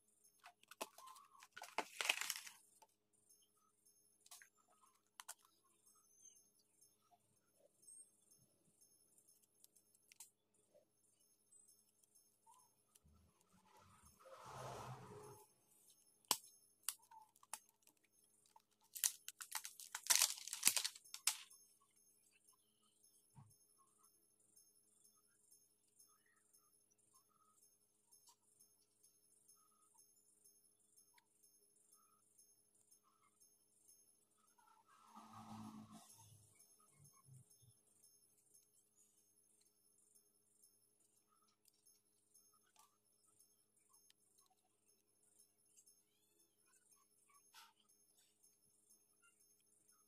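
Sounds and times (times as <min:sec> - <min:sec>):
phone and packaging clicks: 0:00.4 - 0:02.6, 0:18.9 - 0:21.4
plastic film peeling: 0:00.5 - 0:02.6, 0:18.6 - 0:21.4
scraping rustle of packaging: 0:00.8 - 0:02.6, 0:18.8 - 0:21.4.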